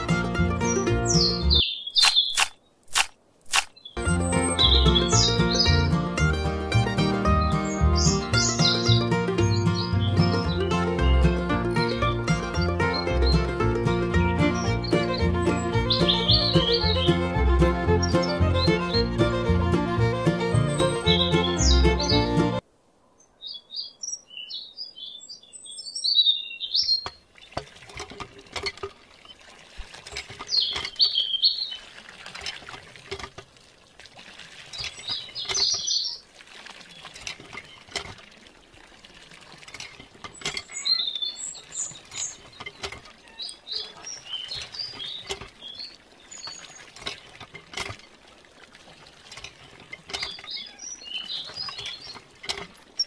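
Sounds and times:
birds chirping: 0:00.0 - 0:02.8, 0:03.6 - 0:29.5, 0:30.4 - 0:31.9, 0:34.7 - 0:38.0, 0:40.1 - 0:47.4, 0:49.0 - 0:53.0
water splashing into plastic tub: 0:27.0 - 0:53.0.

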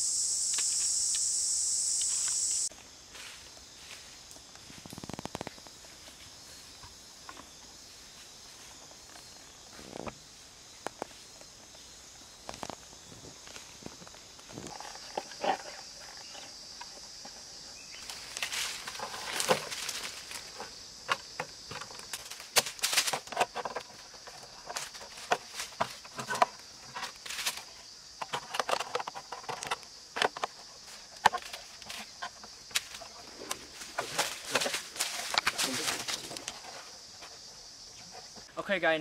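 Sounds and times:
high insect drone: 0:00.0 - 0:39.0
dry leaves crackling and rustling: 0:18.0 - 0:20.5, 0:34.0 - 0:36.4.

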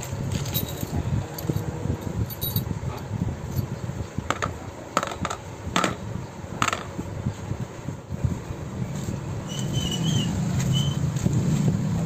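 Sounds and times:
metal parts clinking: 0:00.0 - 0:03.7.

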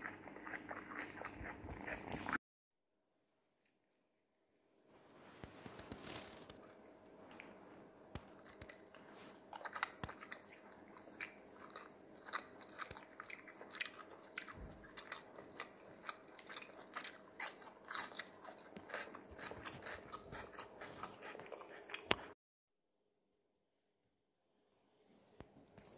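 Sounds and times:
kitten claws clicking and scratching: 0:03.8 - 0:22.4.

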